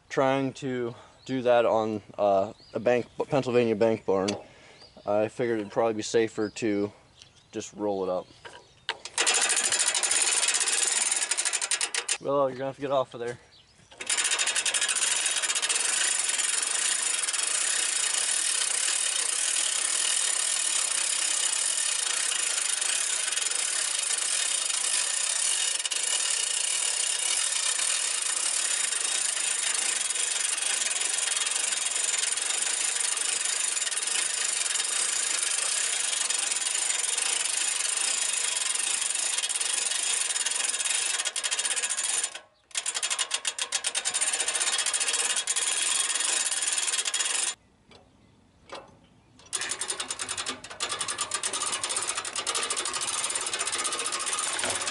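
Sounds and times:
hand-cranked winch rattling: 8.9 - 12.3, 13.9 - 47.6, 48.7 - 54.9
log dragging up ramps: 13.8 - 47.6, 49.4 - 54.9.

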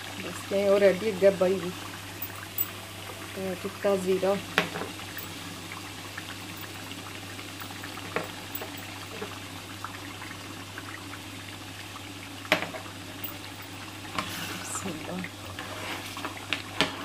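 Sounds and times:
curry bubbling in a pot: 0.0 - 17.0.

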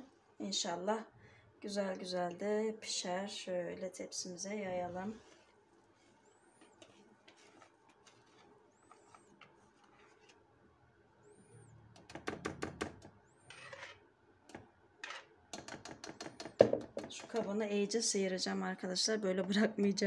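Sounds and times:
whisk scraping a metal tray: 6.6 - 10.4, 13.5 - 14.0.

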